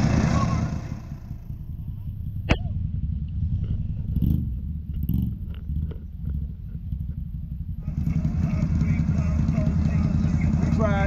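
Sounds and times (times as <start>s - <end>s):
engine running low rumble: 0.0s - 11.0s.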